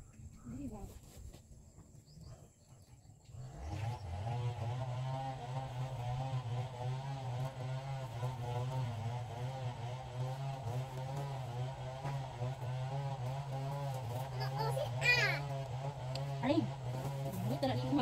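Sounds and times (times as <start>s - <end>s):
motor engine running: 2.0s - 18.0s.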